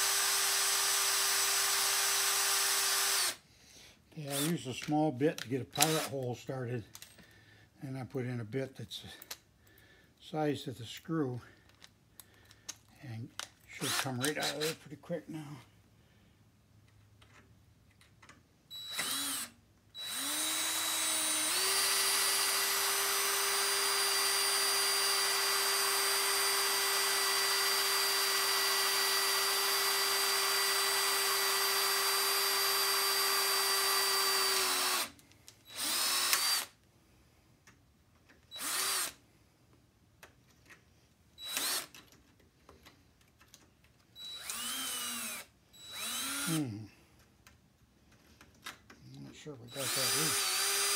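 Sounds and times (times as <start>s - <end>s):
cordless drill boring steel: 0.0s - 3.4s, 4.2s - 4.6s, 5.8s - 6.2s, 13.8s - 14.8s, 18.7s - 36.8s, 38.5s - 39.2s, 41.4s - 42.0s, 44.2s - 46.7s, 49.7s - 50.9s.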